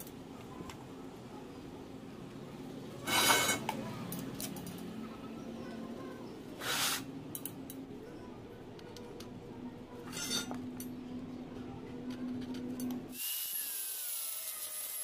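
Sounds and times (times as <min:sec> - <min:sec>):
metal clanks with ring: 0:10.0 - 0:10.9.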